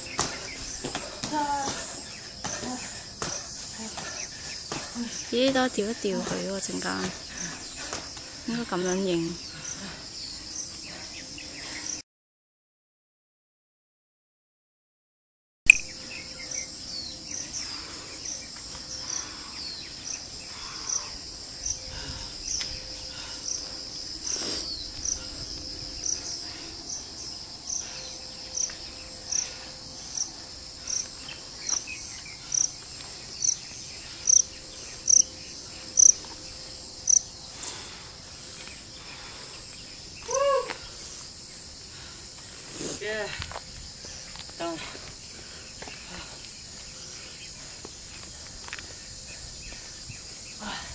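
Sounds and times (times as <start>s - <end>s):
high-pitched insect hum: 0.0s - 12.0s, 15.7s - 50.9s
short high insect chirp: 33.4s - 37.9s.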